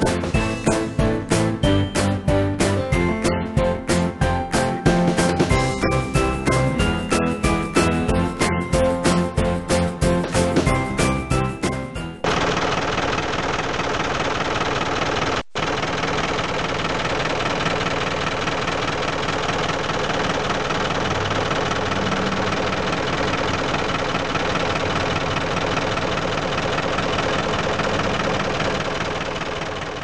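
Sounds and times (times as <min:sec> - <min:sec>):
diesel truck engine idling: 0:13.0 - 0:30.0.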